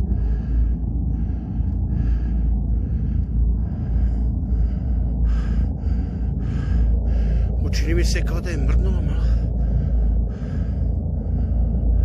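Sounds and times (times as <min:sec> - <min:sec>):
low rumble: 0:00.0 - 0:12.0
person breathing heavily: 0:00.0 - 0:12.0.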